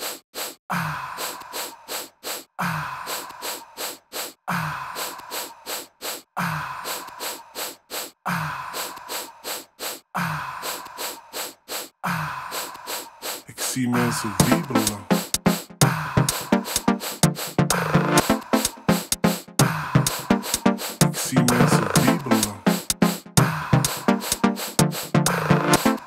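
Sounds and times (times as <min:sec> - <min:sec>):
looped electronic beat: 0:14.0 - 0:26.0.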